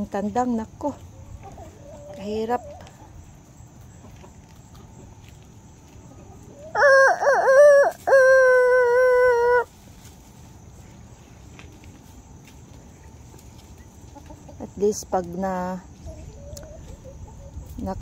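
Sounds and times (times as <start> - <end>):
rooster crowing: 6.7 - 9.7.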